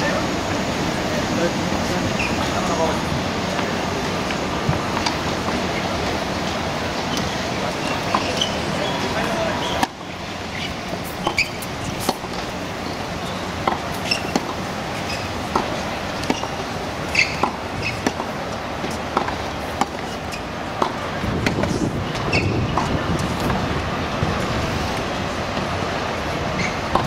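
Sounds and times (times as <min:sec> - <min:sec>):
outdoor background noise: 0:00.0 - 0:27.0
tennis balls struck and bouncing: 0:03.6 - 0:05.6, 0:07.0 - 0:12.6, 0:13.2 - 0:23.6, 0:26.6 - 0:27.0.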